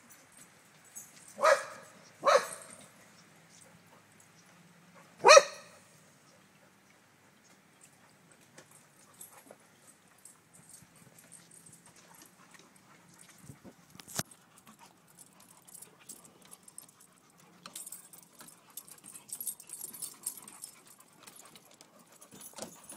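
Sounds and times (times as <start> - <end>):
dogs scuffling on wooden deck: 6.7 - 22.9.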